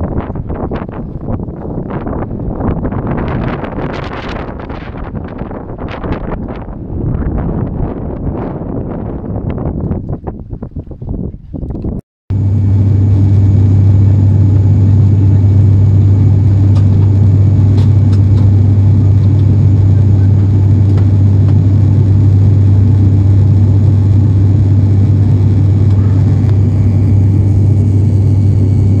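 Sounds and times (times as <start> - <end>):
airliner cabin drone: 12.3 - 29.0.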